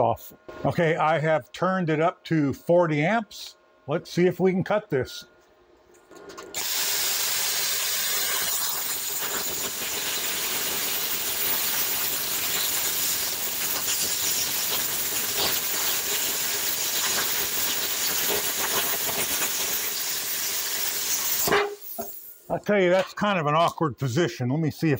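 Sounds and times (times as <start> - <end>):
plasma cutter arc hissing: 6.5 - 22.5.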